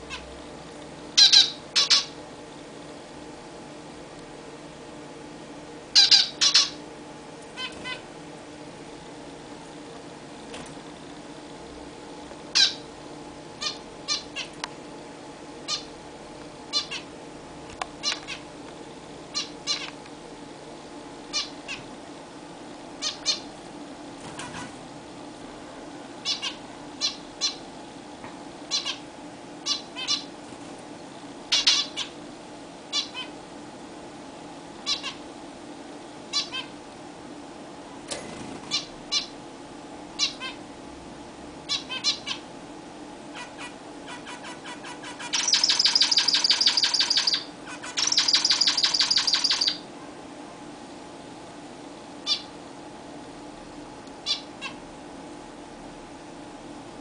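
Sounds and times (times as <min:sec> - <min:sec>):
finches beeping calls: 0:01.2 - 0:02.2, 0:05.9 - 0:06.8, 0:12.5 - 0:12.8, 0:13.6 - 0:14.5, 0:15.7 - 0:15.9, 0:16.7 - 0:17.1, 0:19.4 - 0:19.9, 0:21.3 - 0:21.8, 0:23.0 - 0:23.5, 0:26.2 - 0:27.6, 0:28.7 - 0:29.0, 0:29.7 - 0:30.3, 0:31.5 - 0:32.1, 0:34.9 - 0:35.2, 0:36.3 - 0:36.7, 0:40.2 - 0:40.6, 0:41.7 - 0:42.4, 0:43.4 - 0:49.8, 0:52.2 - 0:52.5, 0:54.2 - 0:54.8.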